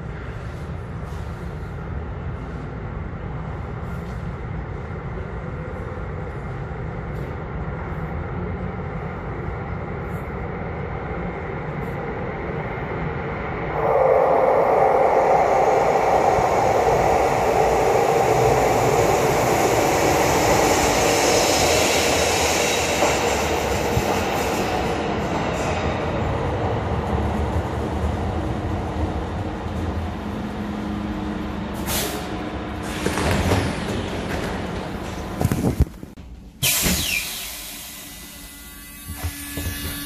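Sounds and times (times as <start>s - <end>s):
train rumbling in tunnel: 0.0s - 40.0s
train wheel noise: 0.0s - 40.0s
high-pitched brake hiss: 36.6s - 39.8s.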